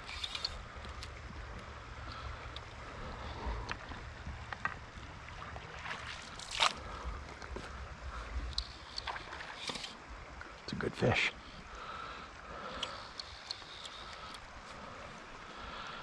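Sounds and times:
river current flowing and lapping: 0:00.0 - 0:16.0
steady low rumble: 0:00.0 - 0:16.0
light ticks: 0:12.7 - 0:14.8.

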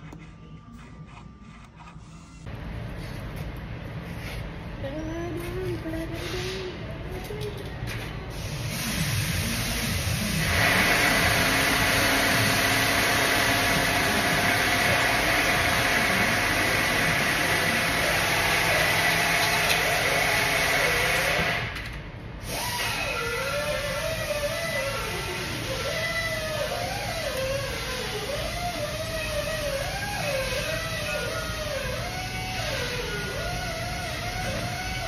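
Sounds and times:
motor running with high whine: 0:10.2 - 0:21.7.

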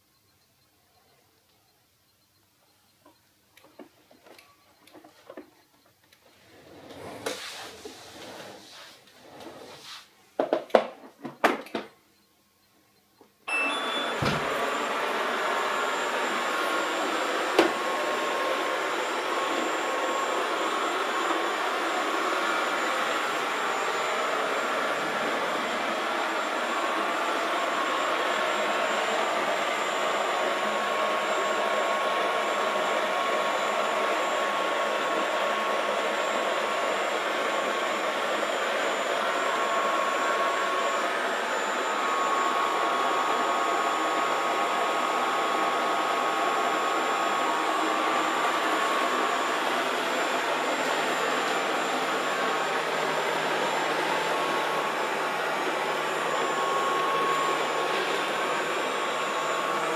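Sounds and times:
robot vacuum beep: 0:13.5 - 0:35.9, 0:37.3 - 0:59.9
robot vacuum running: 0:13.6 - 0:59.9.

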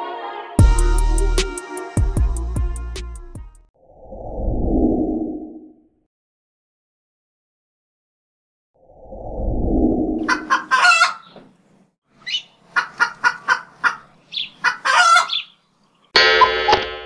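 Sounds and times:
low whoosh: 0:09.0 - 0:10.2.

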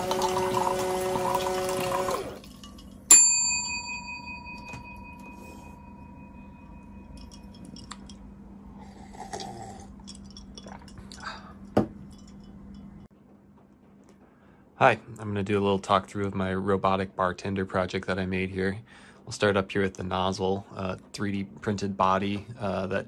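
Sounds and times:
pumps whirring: 0:00.0 - 0:02.5
liquid running into glass: 0:00.0 - 0:03.1
glass cup ringing ping: 0:02.6 - 0:08.2.

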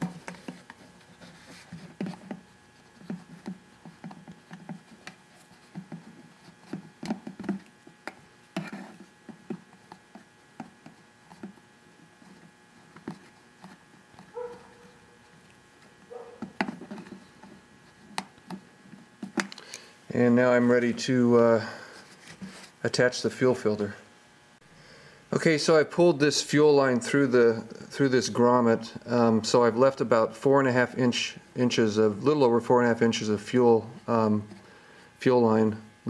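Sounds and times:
rubber hose rubbing on plastic: 0:00.0 - 0:15.4.

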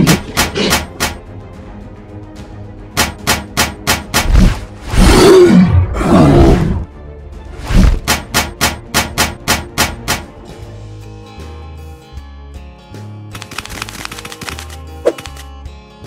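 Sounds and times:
sharp clicking monster footsteps: 0:00.0 - 0:01.3, 0:03.0 - 0:04.6, 0:13.3 - 0:15.5
creature growl: 0:05.0 - 0:06.8.

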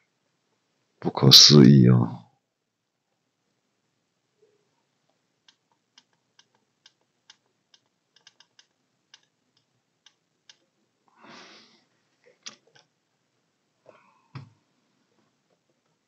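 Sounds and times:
faint sharp clicks: 0:05.4 - 0:10.7
short breathy hiss: 0:11.1 - 0:11.9.

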